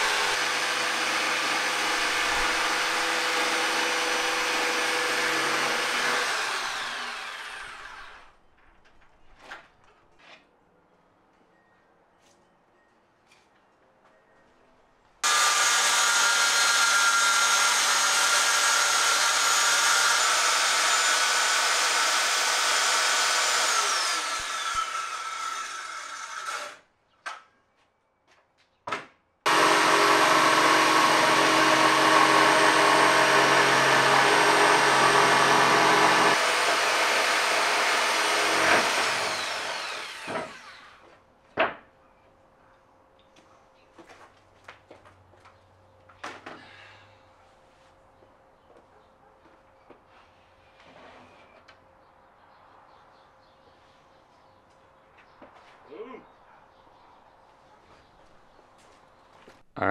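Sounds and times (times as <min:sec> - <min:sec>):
circular saw cutting plywood: 0:00.0 - 0:08.3, 0:15.2 - 0:26.8, 0:29.5 - 0:41.1
saw motor winding down: 0:00.0 - 0:08.3, 0:15.2 - 0:26.8, 0:29.5 - 0:41.0.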